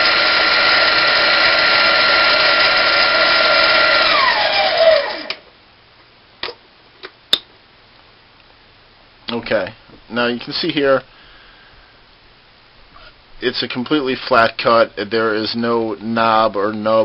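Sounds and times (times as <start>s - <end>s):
metal lathe whining: 0.0s - 5.4s.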